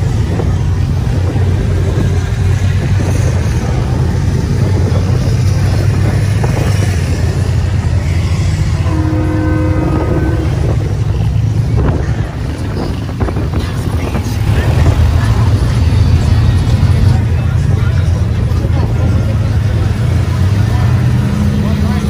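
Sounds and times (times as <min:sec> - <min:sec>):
engines rumbling: 0:00.0 - 0:22.0
horn blowing: 0:08.8 - 0:11.1.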